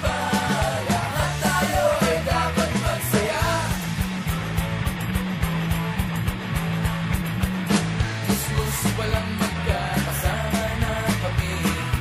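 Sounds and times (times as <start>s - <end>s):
person singing: 0.0s - 3.8s, 8.3s - 12.0s
bass: 0.0s - 12.0s
drums: 0.0s - 12.0s.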